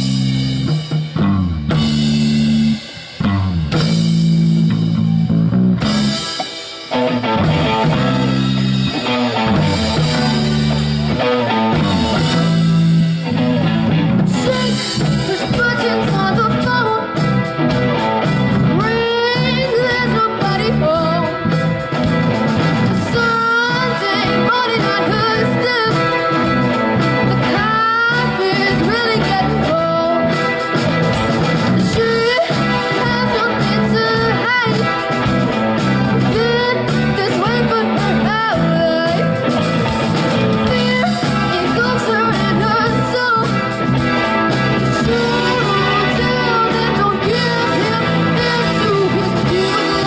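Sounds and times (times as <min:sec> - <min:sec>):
electric guitar: 0:00.0 - 0:50.0
keyboard: 0:00.0 - 0:50.0
person singing into microphone: 0:14.3 - 0:17.6, 0:18.7 - 0:21.6, 0:23.0 - 0:30.8, 0:31.7 - 0:35.2, 0:36.1 - 0:39.5, 0:40.6 - 0:44.2, 0:44.9 - 0:50.0.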